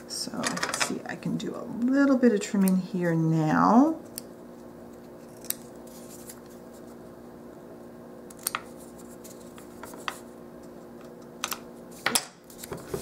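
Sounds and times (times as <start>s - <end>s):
steady low hum: 0.0s - 13.0s
scissors snipping paper: 5.2s - 6.5s.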